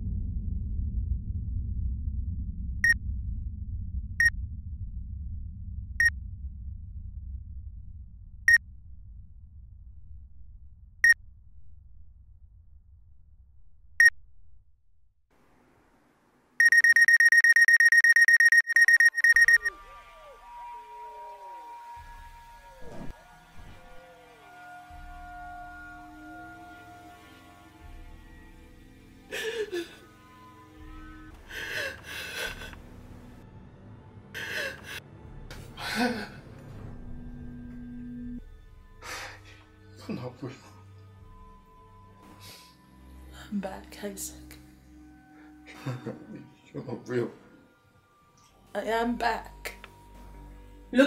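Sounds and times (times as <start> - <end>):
high-pitched electronic beeps: 16.6 - 19.7.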